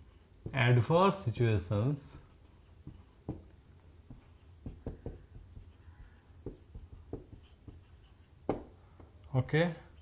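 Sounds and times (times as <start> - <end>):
marker writing on whiteboard: 2.2 - 8.7.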